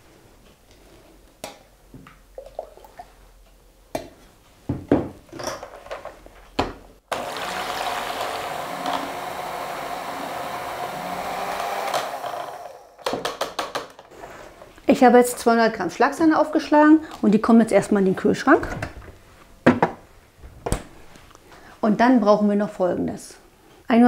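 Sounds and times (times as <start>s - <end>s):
electric hand mixer whipping: 7.1s - 13.0s.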